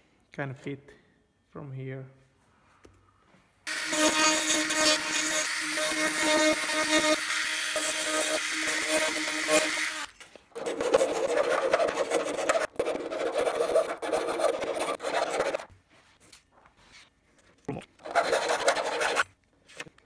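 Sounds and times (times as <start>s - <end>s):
file rasping: 3.7s - 15.7s, 18.0s - 19.2s
rotary tool grinding: 3.7s - 15.7s.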